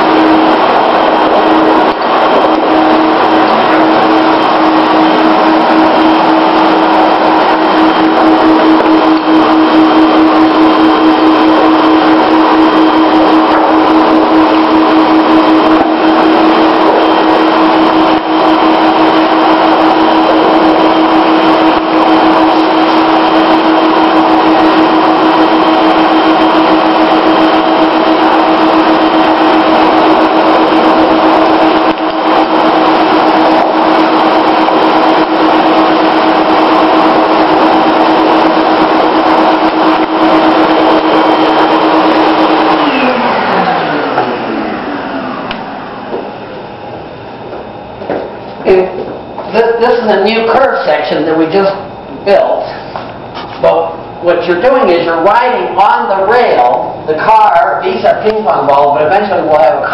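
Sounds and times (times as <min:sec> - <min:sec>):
rushing air: 0:00.0 - 0:47.4
vacuum motor whining: 0:00.0 - 0:59.9.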